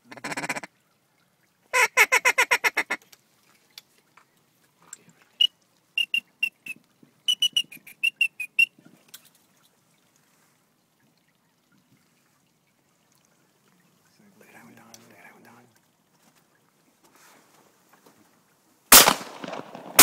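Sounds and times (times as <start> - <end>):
duck call quacks: 0.1 - 0.7, 1.7 - 3.0
high whistled peeps: 5.4 - 8.8.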